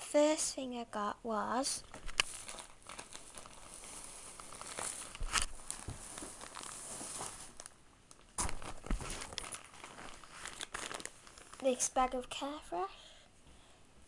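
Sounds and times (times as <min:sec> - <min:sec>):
sharp plastic crackles: 0:01.8 - 0:12.4
plastic packaging rustling: 0:01.8 - 0:12.5.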